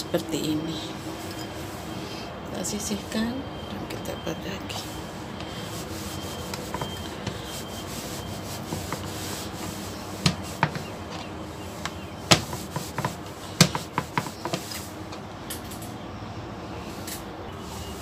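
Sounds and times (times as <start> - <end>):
glass scraping over bread: 1.2 - 1.9, 5.4 - 11.2.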